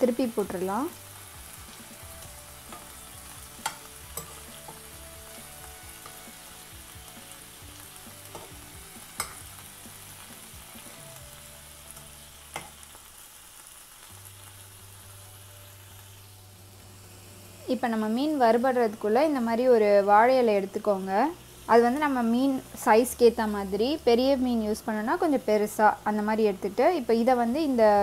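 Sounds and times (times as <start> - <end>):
fish sizzling in frying pan: 0.0 - 28.0
metal spoon clicking on pan: 3.6 - 4.8, 9.2 - 9.4, 12.5 - 12.8.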